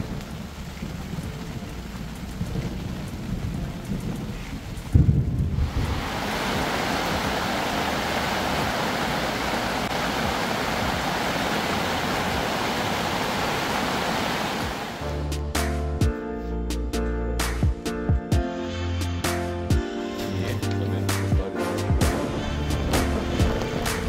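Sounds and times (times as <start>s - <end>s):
thunder rumble: 0.0s - 15.1s, 22.1s - 24.0s
heavy rain on fabric roof: 0.0s - 15.2s, 20.3s - 24.0s.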